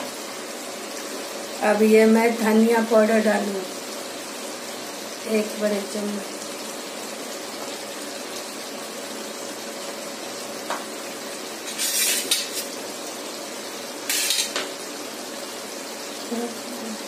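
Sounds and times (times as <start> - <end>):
food sizzling in oil: 0.0 - 17.0
loud bursts of hiss: 14.1 - 14.6.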